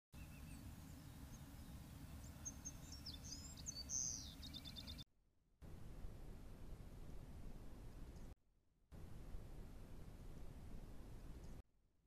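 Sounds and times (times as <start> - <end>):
low steady background rumble: 0.2 - 5.0, 5.6 - 8.4, 9.0 - 11.6
wild birds chirping and calling: 0.2 - 5.0.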